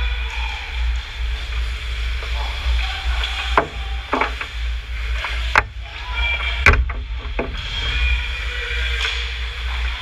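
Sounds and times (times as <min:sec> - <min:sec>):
low rumble: 0:00.0 - 0:10.0
hockey sticks and puck clacking: 0:02.3 - 0:10.0.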